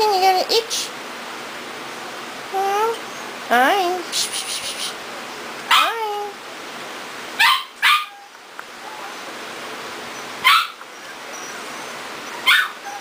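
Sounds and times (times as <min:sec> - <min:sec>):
dog barking: 0:05.7 - 0:06.0, 0:07.4 - 0:08.3, 0:10.4 - 0:10.8, 0:12.4 - 0:13.0.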